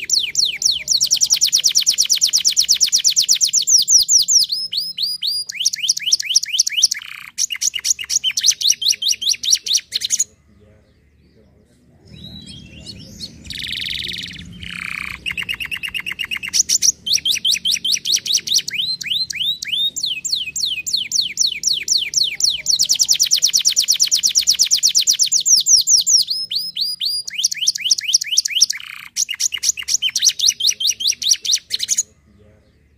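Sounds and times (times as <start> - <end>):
canary singing rapid trills: 0.0 - 11.4, 12.0 - 32.9.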